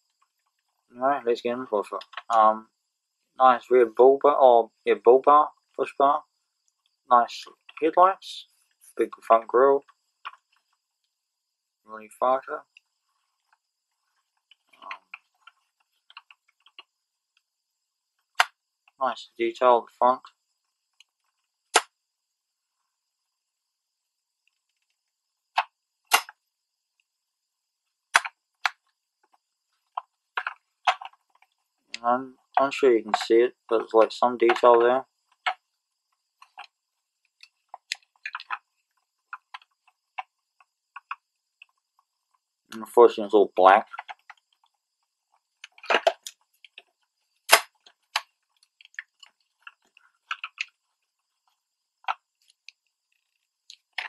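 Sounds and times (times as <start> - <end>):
model car parts clicking: 1.9 - 2.6, 12.7 - 17.5, 28.1 - 35.7, 36.3 - 42.8, 43.6 - 54.0
model car clicks and taps: 28.1 - 28.8, 45.6 - 46.9.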